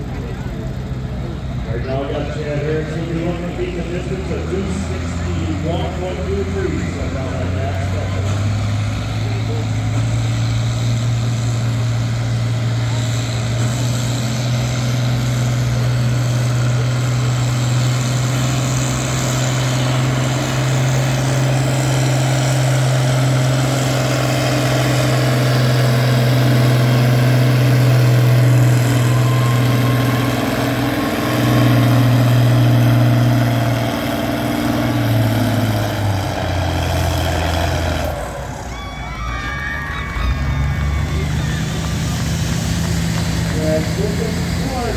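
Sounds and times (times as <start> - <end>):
tractor engine droning at full load: 0.0 - 44.9.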